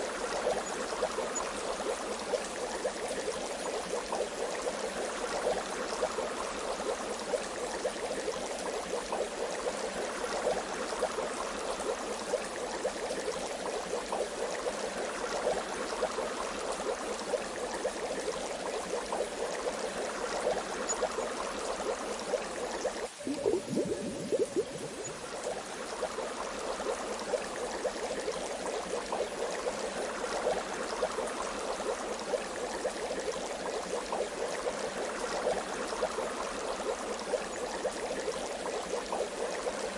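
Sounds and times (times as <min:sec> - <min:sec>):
low falling gurgle: 0:00.0 - 0:39.9
bath water bubbling: 0:22.6 - 0:28.0.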